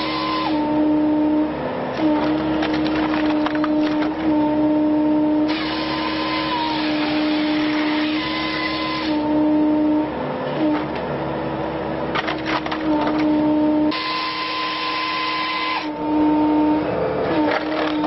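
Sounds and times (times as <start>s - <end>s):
firewood processor drone: 0.0s - 18.0s
log splitting cracks: 2.2s - 4.2s.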